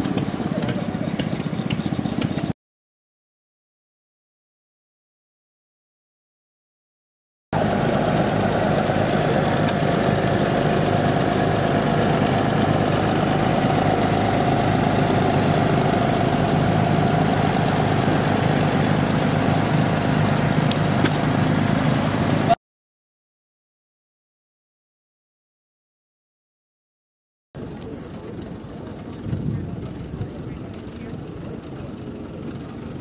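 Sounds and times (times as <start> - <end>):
tractor engine running: 0.0 - 2.5, 7.6 - 22.6, 27.6 - 33.0.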